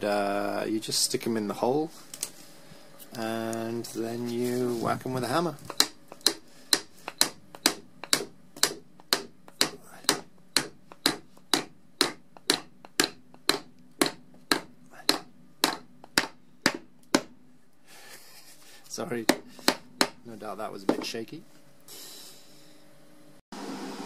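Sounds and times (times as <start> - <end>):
hammer striking plug fixing: 5.7 - 17.3.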